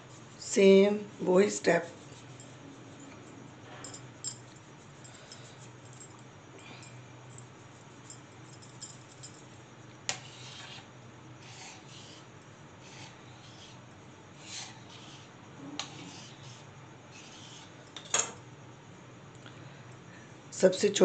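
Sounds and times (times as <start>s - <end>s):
knife scraping dough on wood: 10.1s - 13.8s, 14.4s - 18.1s.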